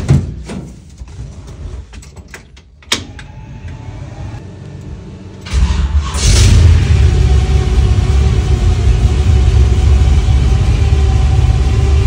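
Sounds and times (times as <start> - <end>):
truck engine cranking and starting: 5.4 - 12.0.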